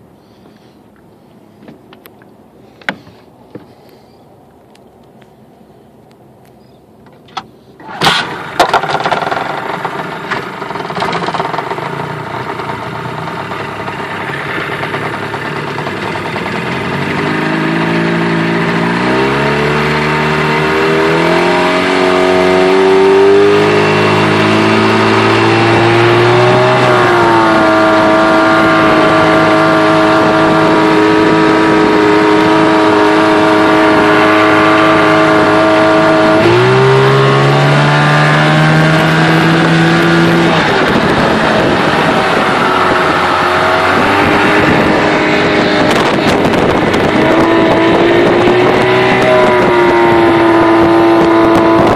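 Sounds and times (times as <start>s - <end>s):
outboard engine starting bang: 7.8s - 16.6s
outboard engine revving: 7.8s - 51.9s.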